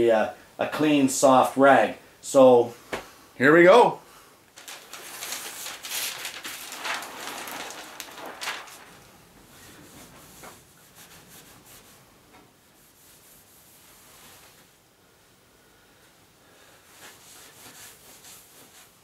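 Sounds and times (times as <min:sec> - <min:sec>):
paper sheet rustling: 0:04.5 - 0:12.0.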